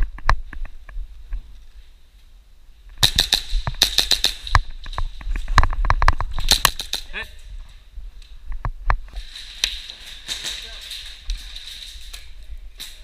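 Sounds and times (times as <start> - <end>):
airsoft gun rapid sharp pops: 3.0 - 4.7, 6.4 - 7.1.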